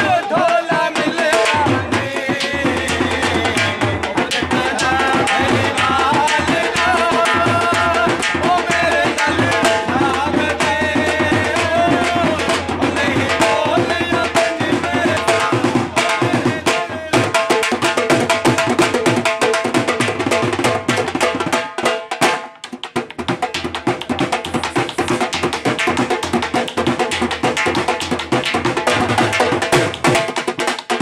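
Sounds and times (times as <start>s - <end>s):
man singing into microphone: 0.0s - 17.6s
barrel drums beaten with sticks: 0.0s - 31.0s.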